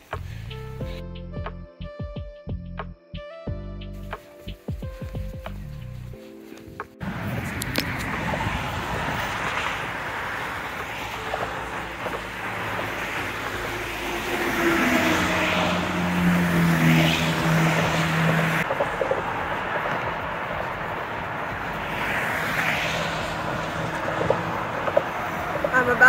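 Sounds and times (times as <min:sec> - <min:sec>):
highway traffic whooshing past: 0:04.0 - 0:26.0
heavy truck engine drone: 0:07.0 - 0:26.0.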